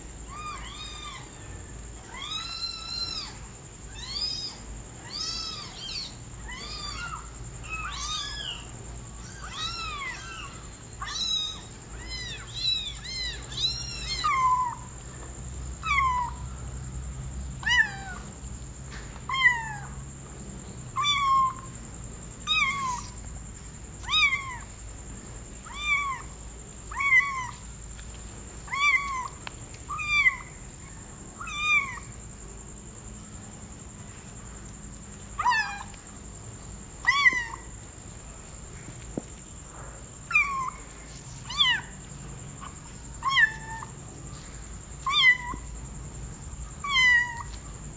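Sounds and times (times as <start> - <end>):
kitten meowing: 46.8 - 47.6.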